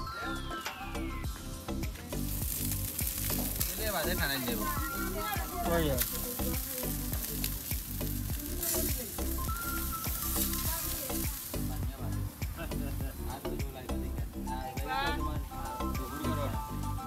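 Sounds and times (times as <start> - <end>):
background music with a beat: 0.0 - 17.0
chicken sizzling on a grill: 1.3 - 17.0
tongs turning meat: 2.2 - 11.8.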